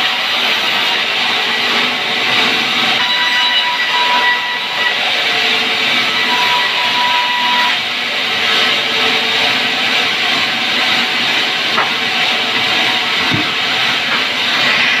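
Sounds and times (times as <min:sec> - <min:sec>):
band saw whirring hiss: 0:10.6 - 0:15.0.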